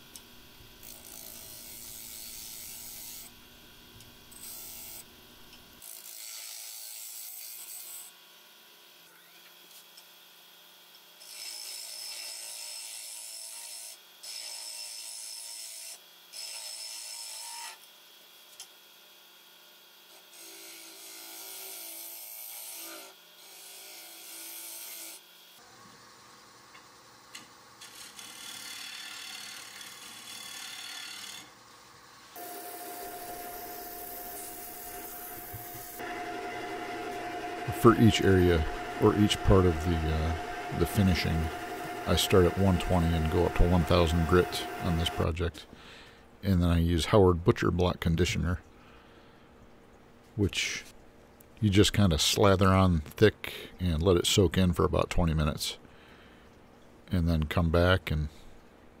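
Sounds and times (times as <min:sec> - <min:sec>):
turning gouge cutting spinning wood: 0:32.4 - 0:45.3.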